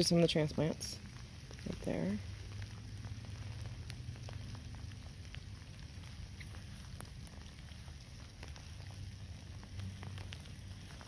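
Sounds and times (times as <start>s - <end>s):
light rain falling: 0.0s - 11.0s
steady low rumble: 0.0s - 11.0s.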